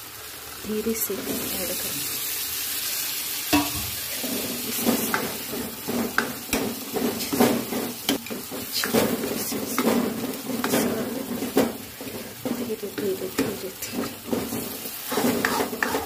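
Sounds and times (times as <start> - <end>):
frying sizzle: 0.0 - 16.0
spoon clinking against pan: 3.5 - 3.9
spoon stirring and scraping pan: 3.5 - 16.0.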